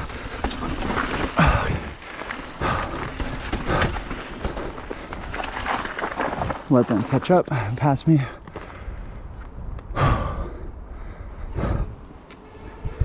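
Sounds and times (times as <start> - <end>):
bike tyre and trail noise: 0.0 - 13.0
wind on microphone: 11.5 - 13.0.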